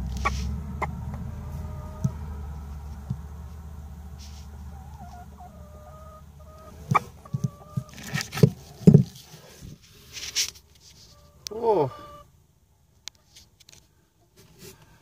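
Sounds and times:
hen clucking: 0:00.0 - 0:03.3, 0:04.1 - 0:09.0, 0:11.0 - 0:12.3.

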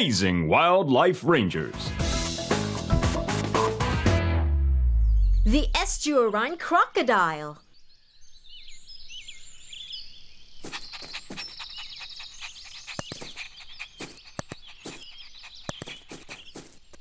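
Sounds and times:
birds chirping: 0:05.0 - 0:17.0.

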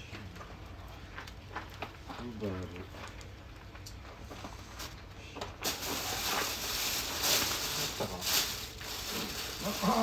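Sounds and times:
plastic bag crinkling: 0:05.6 - 0:10.0.

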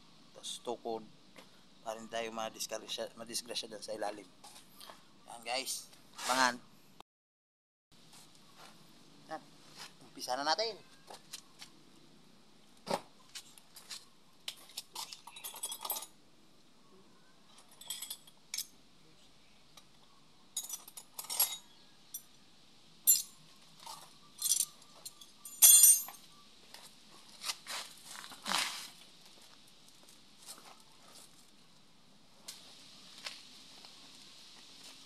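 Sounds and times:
metal tools clinking: 0:14.5 - 0:16.1, 0:17.6 - 0:18.7, 0:20.6 - 0:21.6, 0:23.1 - 0:26.2.

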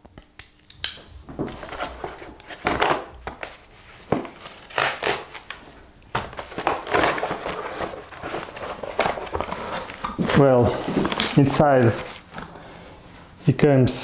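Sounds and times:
cardboard rustling and scraping: 0:01.4 - 0:05.4, 0:06.2 - 0:12.5
packaging crinkling: 0:01.5 - 0:12.5.

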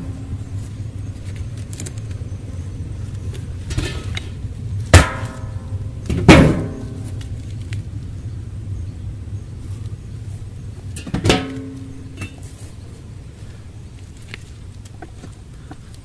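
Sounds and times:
steady low rumble: 0:00.0 - 0:16.0
metallic clangs on steel drum: 0:04.9 - 0:07.0, 0:11.0 - 0:12.4.

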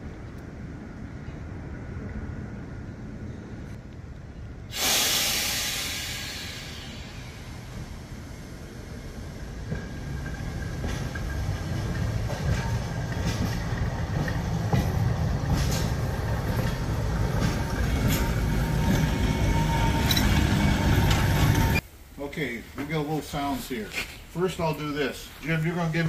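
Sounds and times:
streetcar rumbling on rails: 0:00.0 - 0:21.8
wheels clicking over rail joints: 0:06.6 - 0:21.8.

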